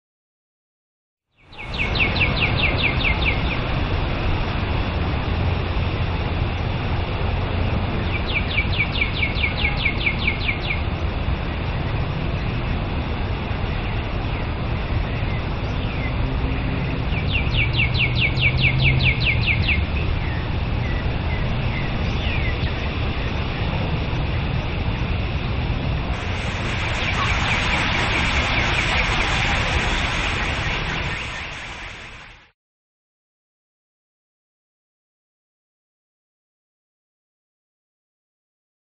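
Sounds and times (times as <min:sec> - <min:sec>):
songbird trilling: 0:01.5 - 0:03.6
steady hiss: 0:21.5 - 0:32.5
low rumble: 0:23.0 - 0:32.5.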